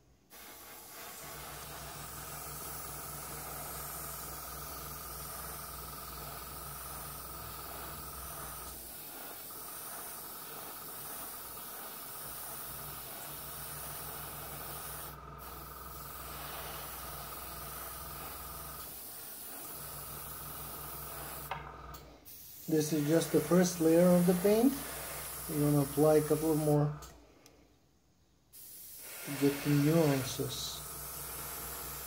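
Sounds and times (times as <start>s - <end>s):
airbrush spraying hiss: 0.0s - 26.9s, 28.5s - 32.0s.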